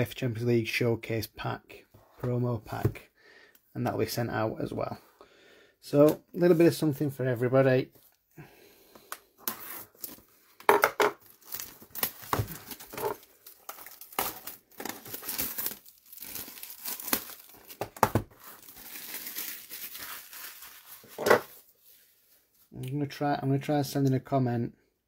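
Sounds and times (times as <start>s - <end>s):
card packaging tearing and crinkling: 11.2s - 21.7s.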